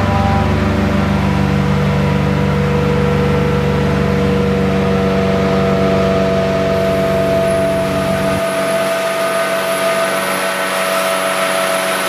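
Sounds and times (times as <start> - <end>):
truck engine and vacuum pump: 0.0 - 12.0
suction hose rushing water: 6.7 - 12.0.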